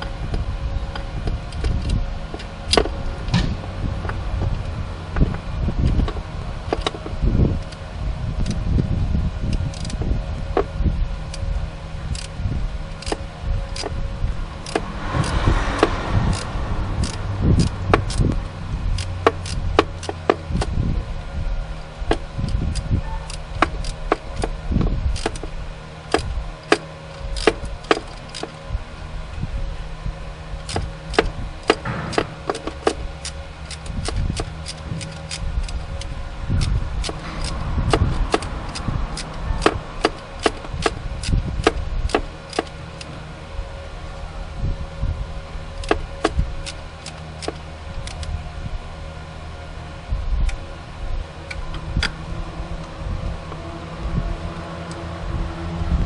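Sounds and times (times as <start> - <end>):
steady low hum: 0.0 - 56.0
metallic clicks and scraping of tools: 9.5 - 11.5, 12.1 - 14.0, 14.6 - 20.8, 22.1 - 28.6, 30.6 - 43.2, 45.8 - 48.4.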